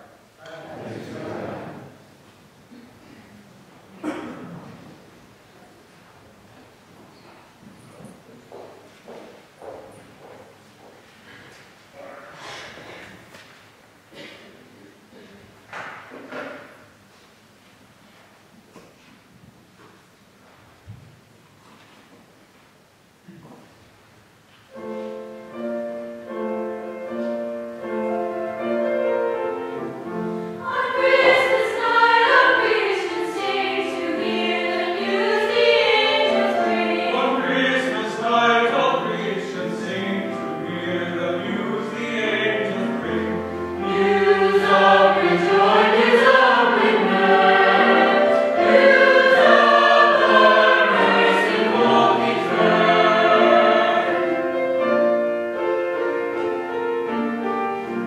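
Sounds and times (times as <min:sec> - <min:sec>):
mixed choir singing a carol: 0:00.0 - 0:02.1, 0:24.7 - 0:57.2.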